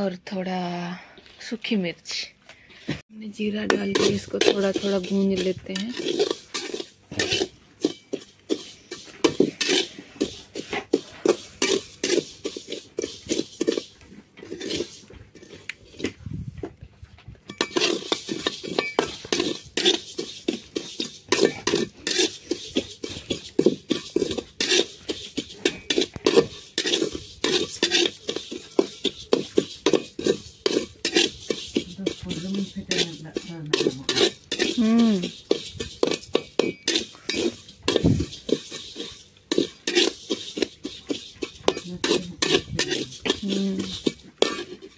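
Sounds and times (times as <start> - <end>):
metal spatula scraping pan: 3.4 - 16.3, 17.5 - 44.9.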